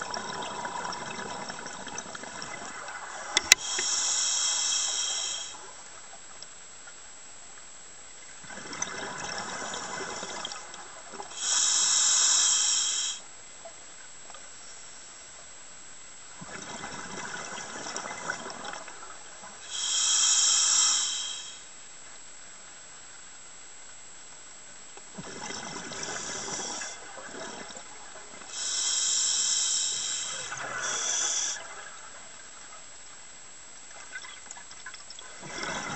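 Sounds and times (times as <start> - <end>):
regulator breath hissing: 3.5 - 5.7, 11.3 - 13.3, 19.6 - 21.7, 26.0 - 27.0, 28.5 - 31.6.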